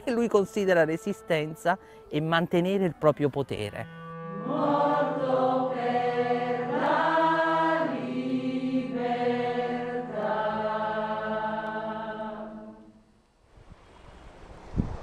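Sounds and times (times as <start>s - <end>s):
slow chant-like music: 4.0s - 13.1s.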